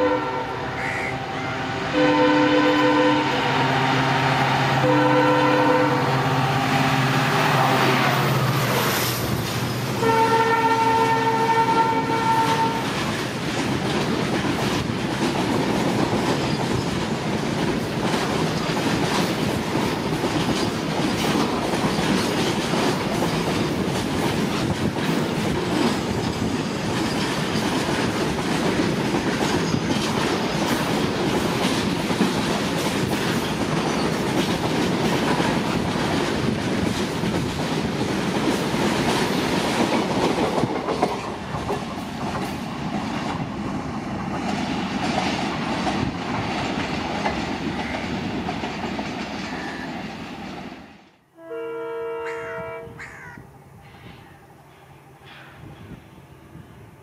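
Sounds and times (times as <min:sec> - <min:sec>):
train wheels clattering over rail joints: 0:12.2 - 0:50.9.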